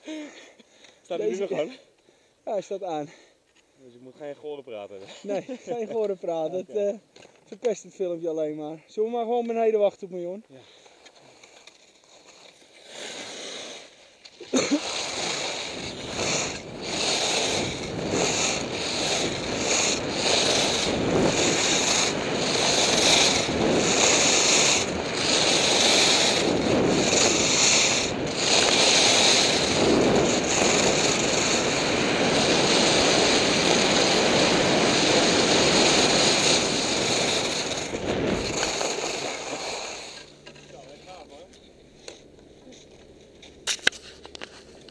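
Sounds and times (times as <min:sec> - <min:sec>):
skis hissing and scraping on snow: 0:05.0 - 0:06.5, 0:10.7 - 0:40.4
wind rushing over microphone: 0:14.7 - 0:40.2.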